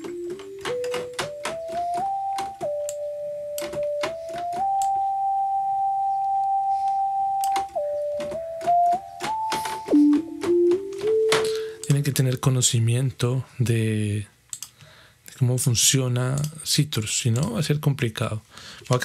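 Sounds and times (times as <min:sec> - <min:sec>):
sharp clicks: 0:14.5 - 0:14.8.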